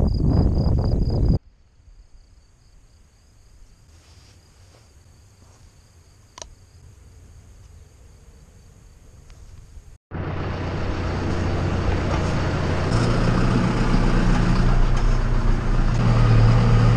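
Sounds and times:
crickets chirping: 0.0s - 10.0s
loud rumbling rustling noise: 9.4s - 16.9s.

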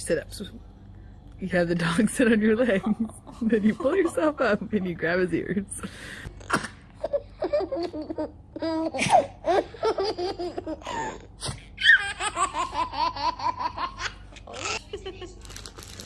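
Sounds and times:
baby laughing: 7.0s - 15.2s.

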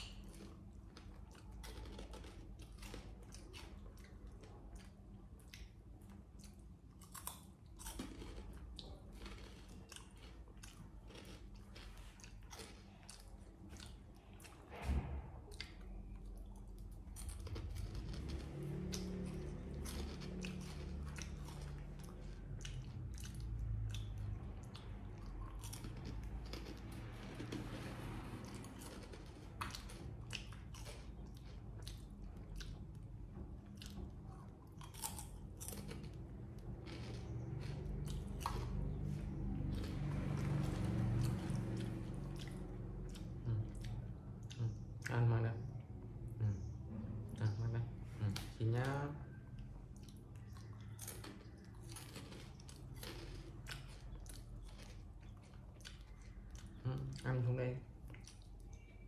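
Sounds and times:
monkey chewing crunchy chips: 0.0s - 5.0s, 6.4s - 14.4s, 15.9s - 32.8s, 49.9s - 57.2s.

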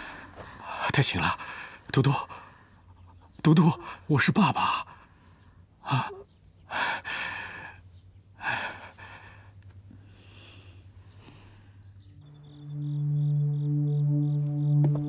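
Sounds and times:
person breathing heavily: 0.0s - 3.1s, 3.8s - 12.0s.

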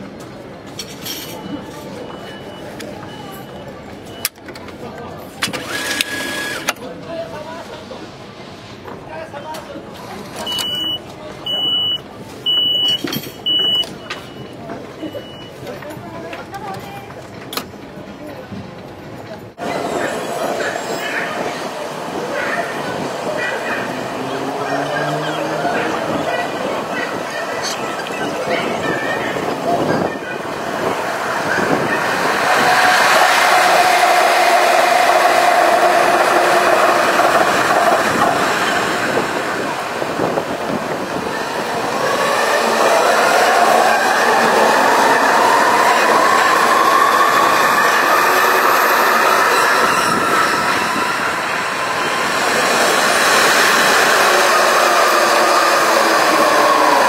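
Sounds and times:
train wheels rumbling on rails: 12.0s - 57.0s
electric train motor whine: 30.1s - 39.6s, 41.5s - 57.0s.

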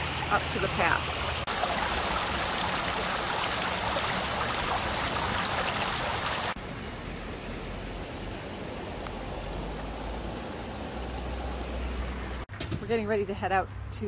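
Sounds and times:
creek rushing over rocks: 0.0s - 6.6s.

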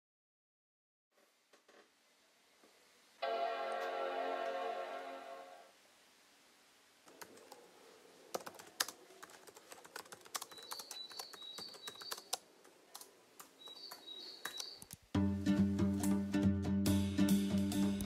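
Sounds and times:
typing on laptop keyboard: 8.3s - 15.0s.

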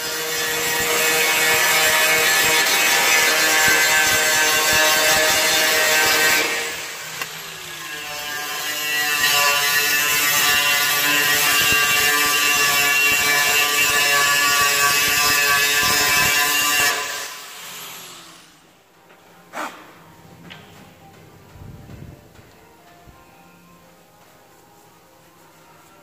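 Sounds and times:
angle grinder grinding metal: 0.0s - 18.6s.

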